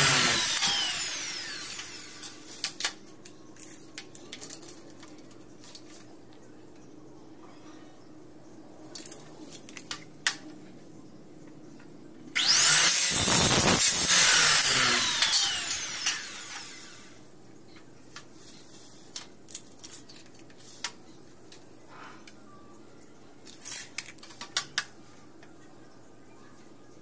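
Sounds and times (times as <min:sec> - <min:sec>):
miter saw cutting aluminium: 0:00.0 - 0:02.4, 0:12.4 - 0:17.2
saw blade winding down whine: 0:00.0 - 0:02.4, 0:12.4 - 0:17.2.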